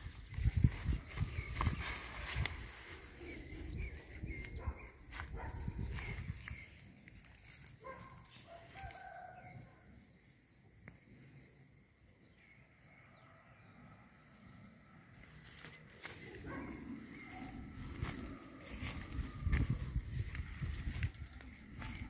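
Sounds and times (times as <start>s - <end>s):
birds chirping: 0.0s - 8.4s, 9.9s - 22.0s
footsteps in dry leaves: 0.0s - 9.2s, 15.4s - 22.0s.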